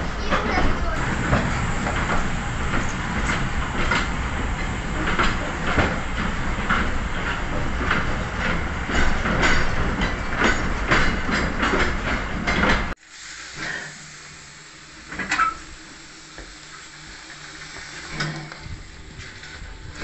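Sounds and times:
train wheels clacking over rail joints: 0:00.0 - 0:13.0
hiss of steam: 0:01.0 - 0:06.1, 0:13.0 - 0:19.2.

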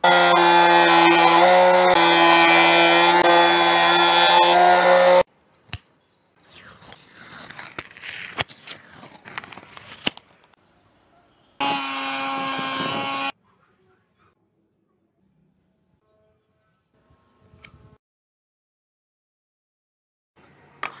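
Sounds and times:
scroll saw motor humming: 0:00.0 - 0:05.3, 0:11.6 - 0:13.3
protective film peeling crackle: 0:06.4 - 0:10.6.

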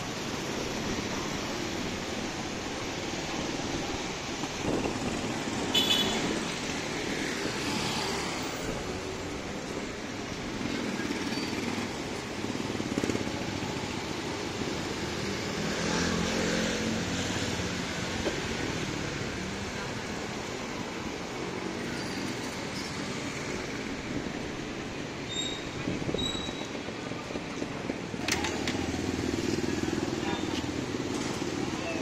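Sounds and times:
street traffic: 0:00.0 - 0:32.0.

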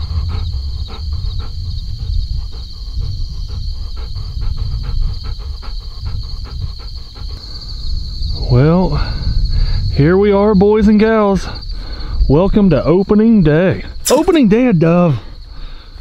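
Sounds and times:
dog panting rapidly: 0:00.0 - 0:08.2
crickets chirring: 0:00.0 - 0:16.0.

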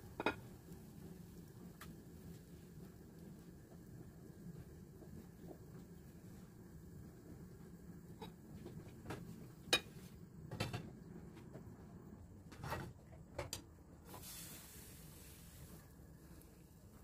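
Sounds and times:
batter hissing in hot pan: 0:00.0 - 0:06.8, 0:14.0 - 0:17.0.

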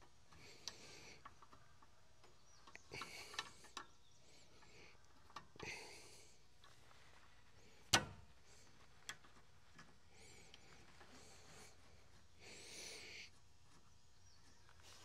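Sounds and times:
soft rustling: 0:06.2 - 0:15.0.

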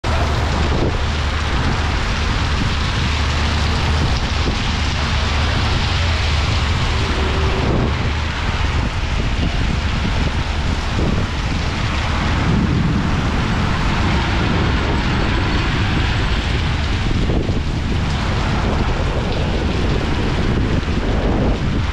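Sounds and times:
deep rumble: 0:00.0 - 0:21.9
heavy rain pouring: 0:00.0 - 0:21.9.

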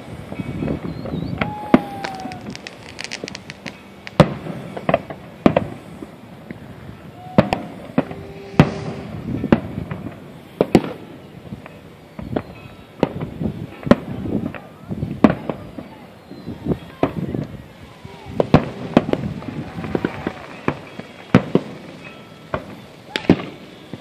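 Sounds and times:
fireworks bursting: 0:00.0 - 0:24.0
low rumbling echo: 0:00.1 - 0:11.6.

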